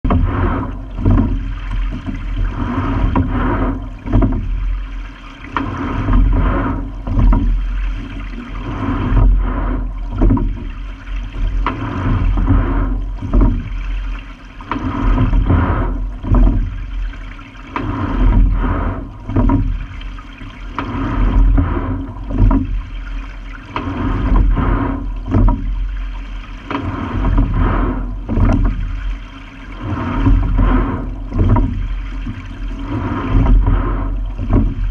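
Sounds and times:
sharp knock of oar stroke: 0.0s - 4.8s, 5.5s - 34.9s
water rushing along hull: 0.0s - 34.9s.

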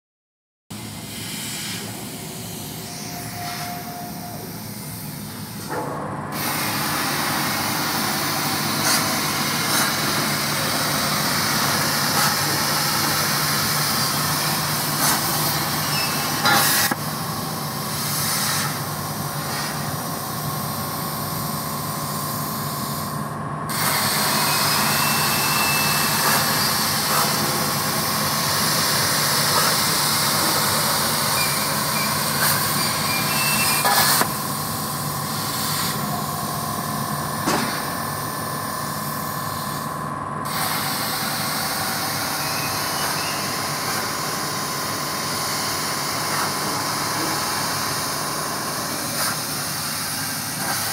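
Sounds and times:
plasma arc hissing: 1.0s - 5.7s, 6.3s - 17.0s, 17.9s - 20.0s, 22.4s - 34.3s, 35.3s - 36.2s, 40.5s - 48.1s.

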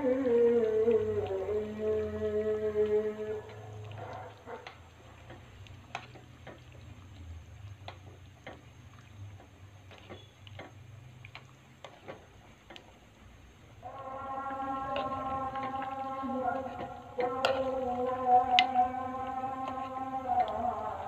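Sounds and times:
stew simmering: 0.0s - 21.0s
low hum: 13.7s - 21.0s.

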